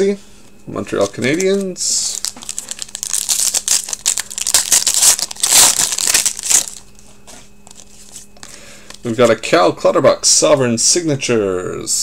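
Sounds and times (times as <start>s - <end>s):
foil wrapper crinkling: 1.0s - 7.0s.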